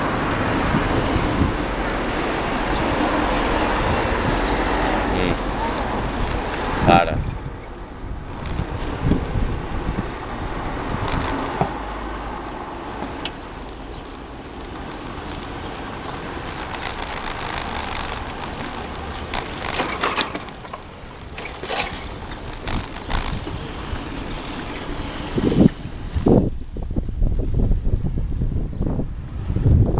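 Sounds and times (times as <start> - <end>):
wind rumble on microphone: 0.0 - 12.0, 21.7 - 29.9
bicycle rattling over bumps: 0.0 - 28.7
bicycle tyres rolling: 0.0 - 29.6.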